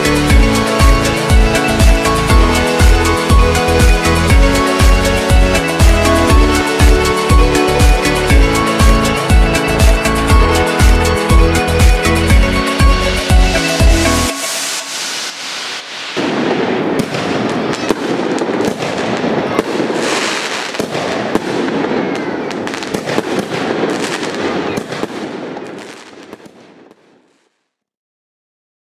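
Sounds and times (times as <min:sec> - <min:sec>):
steady rushing noise: 0:00.0 - 0:19.6
fireworks crackling and banging: 0:00.0 - 0:27.7.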